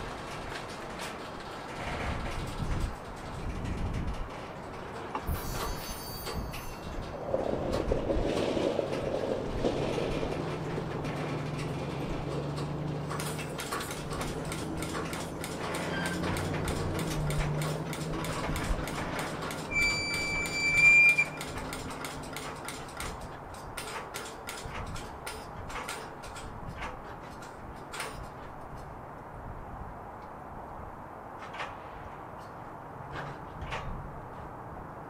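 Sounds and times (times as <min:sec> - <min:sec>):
wheels clicking and clattering: 0:00.0 - 0:29.2, 0:31.3 - 0:35.0
railroad cars rolling past: 0:00.0 - 0:35.0
high squeal: 0:19.7 - 0:21.5.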